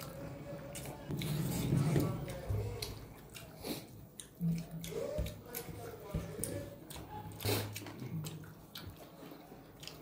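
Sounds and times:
wet chewing: 0:00.0 - 0:10.0.

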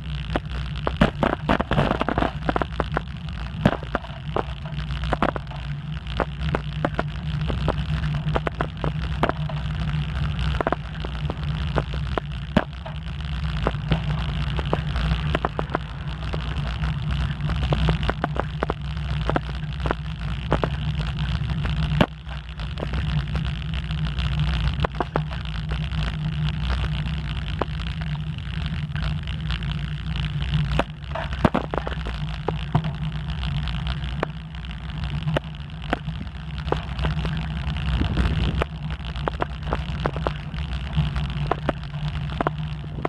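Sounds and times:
tyre noise on asphalt: 0:00.0 - 0:43.0
wind buffeting microphone: 0:36.1 - 0:39.1.

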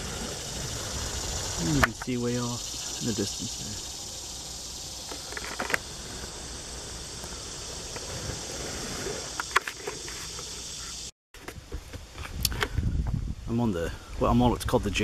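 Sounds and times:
high-pitched insect chorus: 0:00.0 - 0:11.1.

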